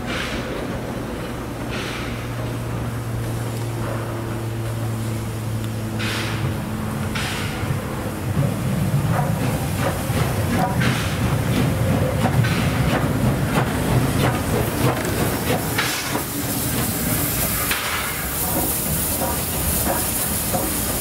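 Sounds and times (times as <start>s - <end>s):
steam locomotive rumbling past: 0.0s - 21.0s
steam hissing in short bursts: 15.3s - 21.0s.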